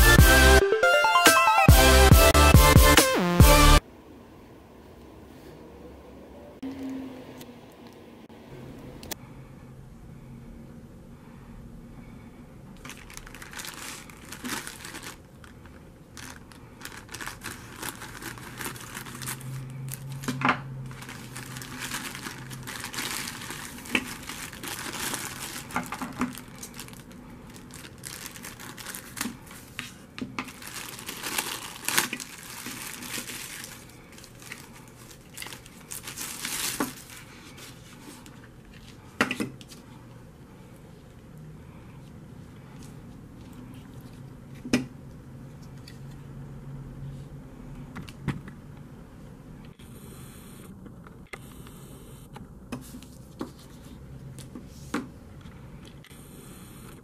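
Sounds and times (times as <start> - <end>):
plastic bag crinkling: 12.8 - 29.8, 30.4 - 39.0.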